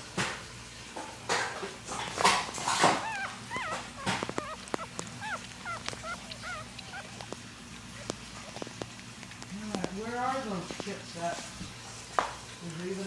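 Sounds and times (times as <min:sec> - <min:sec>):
puppies squeaking and whimpering: 0:01.8 - 0:12.0.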